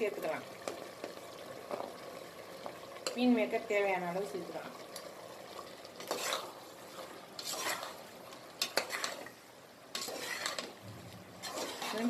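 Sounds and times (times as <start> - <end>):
metal spoon scraping pot: 6.0 - 6.6, 7.4 - 8.0, 8.6 - 9.3, 9.9 - 12.0.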